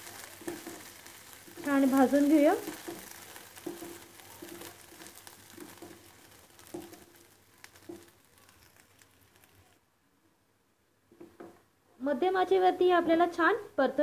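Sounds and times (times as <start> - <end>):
peas crackling in oil: 0.0 - 9.9.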